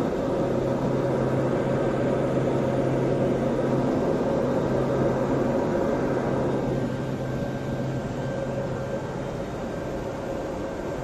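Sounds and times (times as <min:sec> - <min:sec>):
turboprop engine drone in cabin: 0:00.0 - 0:11.0.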